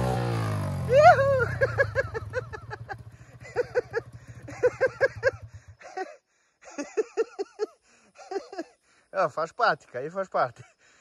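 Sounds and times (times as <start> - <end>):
small motorcycle engine running: 0.0 - 5.9
high-pitched laughter: 0.9 - 8.7.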